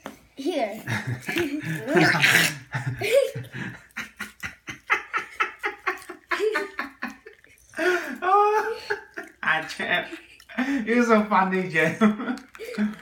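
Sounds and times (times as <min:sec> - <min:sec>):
boy laughing: 0:00.8 - 0:10.6.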